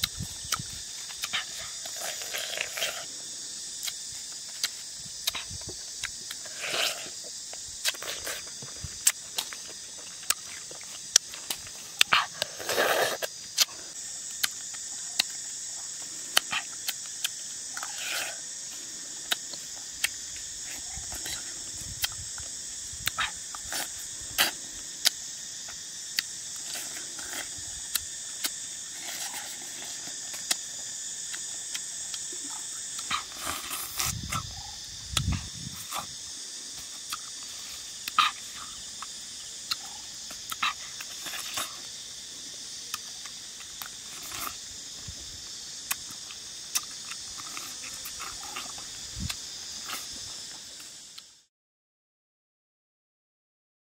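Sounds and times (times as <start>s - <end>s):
insect chorus: 0.0s - 51.5s
mouth clicks and smacks eating: 3.8s - 6.4s, 13.1s - 18.3s, 19.2s - 36.2s, 36.9s - 41.9s, 45.8s - 51.2s.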